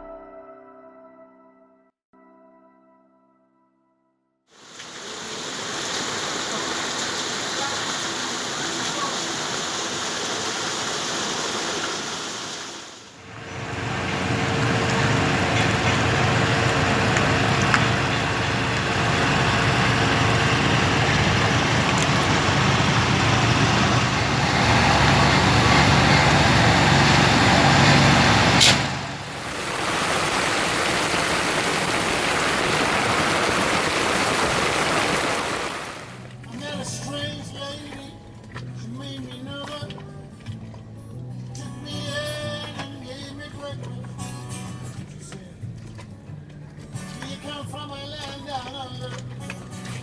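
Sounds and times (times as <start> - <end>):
heavy rain on sea: 4.6 - 36.2
rain falling: 4.6 - 36.2
trailer engine rumbling: 13.2 - 33.8
steady hum: 13.3 - 36.1.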